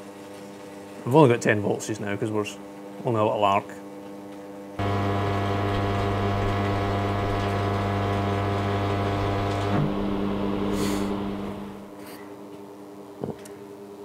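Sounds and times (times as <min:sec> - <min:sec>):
arc welder buzzing and crackling: 0:04.8 - 0:12.0.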